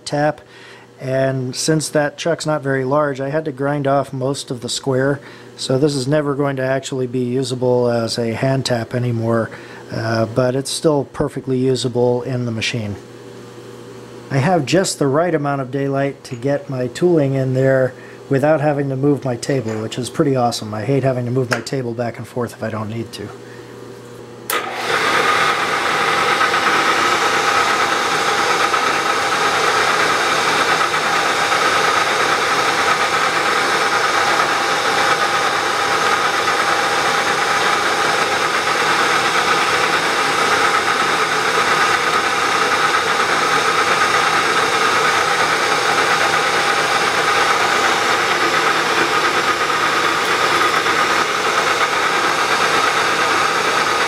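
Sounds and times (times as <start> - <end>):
milling machine spindle whining: 24.5 - 54.0.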